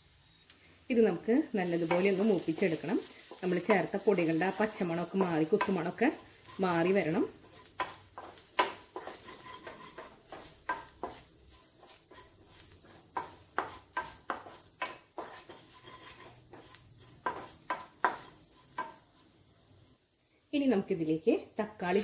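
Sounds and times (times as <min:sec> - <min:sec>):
spatula scraping onions in wok: 0:00.9 - 0:19.8, 0:21.7 - 0:22.0
spatula knocking against pan: 0:07.8 - 0:11.2, 0:13.1 - 0:15.6, 0:17.2 - 0:19.0.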